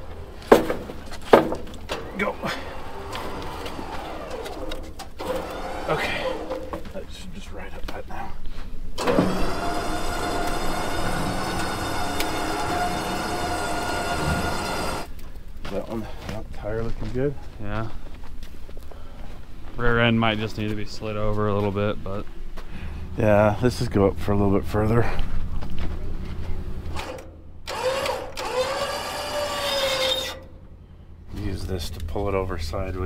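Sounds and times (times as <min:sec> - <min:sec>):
winch whining under load: 0:00.0 - 0:06.9, 0:09.0 - 0:15.2, 0:26.8 - 0:31.4
low engine hum: 0:20.5 - 0:27.7, 0:30.4 - 0:33.0.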